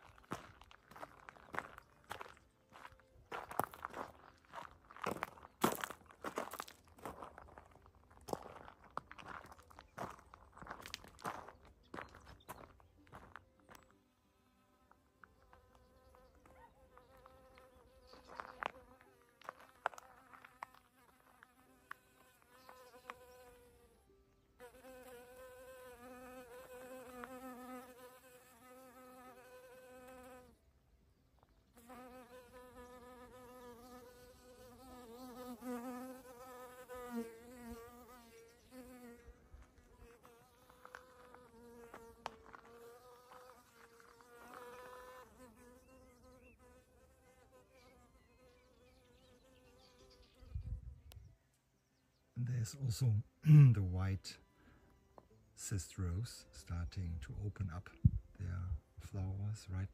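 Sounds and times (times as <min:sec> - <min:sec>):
bee buzzing: 0:14.4 - 0:30.6, 0:31.7 - 0:50.8.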